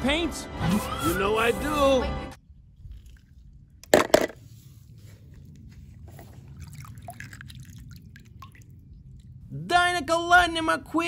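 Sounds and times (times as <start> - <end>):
water trickling and dripping: 6.1 - 9.5.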